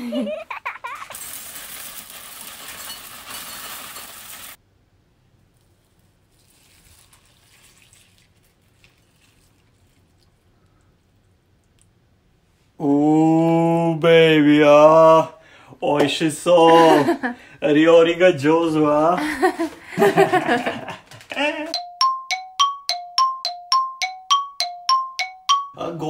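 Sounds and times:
milk pouring onto cereal: 0.8 - 4.6, 5.6 - 10.8
cereal poured into ceramic bowl: 1.1 - 4.6, 5.6 - 10.2.

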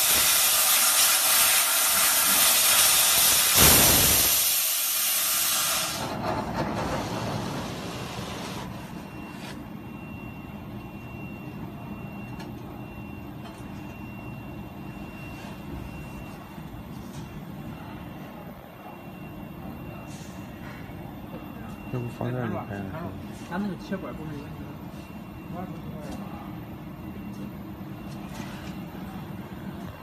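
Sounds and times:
assist gas hissing: 0.0 - 6.0.

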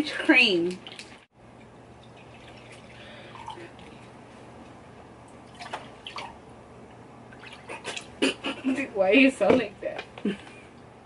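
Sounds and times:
drink pouring into glasses: 2.0 - 4.0.

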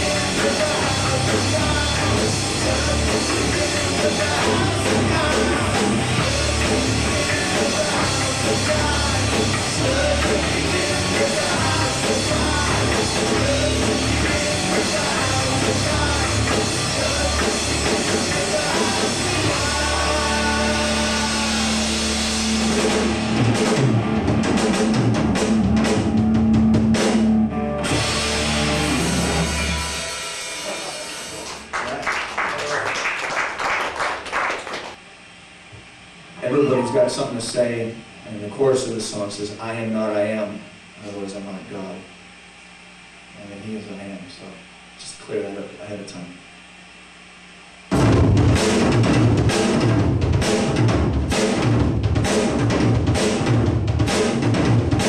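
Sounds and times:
person singing: 0.0 - 22.2
drum hits and cymbal crashes: 0.0 - 31.5, 47.9 - 55.0
live rock band playing: 0.0 - 31.7, 47.9 - 55.0.

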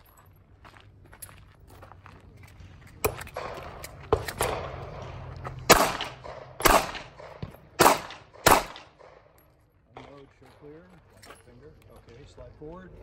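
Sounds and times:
pistol firing single shots: 3.0 - 9.4.

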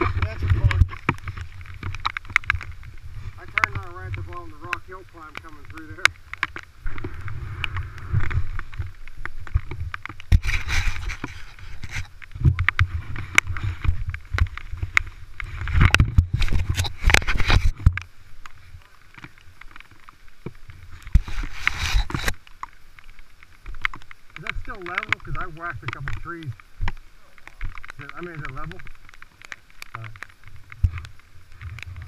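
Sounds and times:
dirt bike engine rumble: 0.0 - 18.1.

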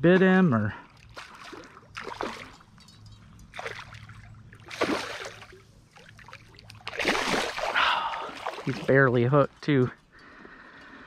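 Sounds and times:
water splashing: 0.8 - 9.3.

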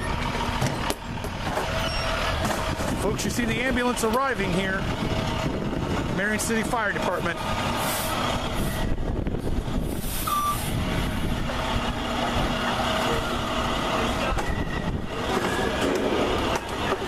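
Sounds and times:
vehicle engine running: 0.0 - 17.0
short beep: 10.2 - 10.7.

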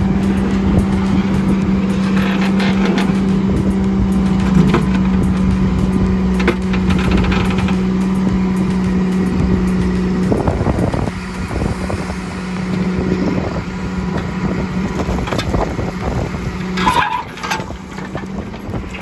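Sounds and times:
diesel engine running: 0.0 - 19.0
bucket scraping gravel and rock: 16.6 - 19.0.

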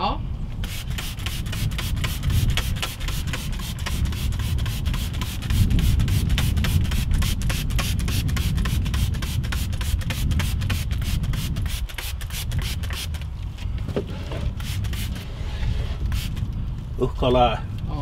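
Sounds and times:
spray bottle hissing: 0.6 - 13.2, 14.6 - 15.2, 16.0 - 16.4.

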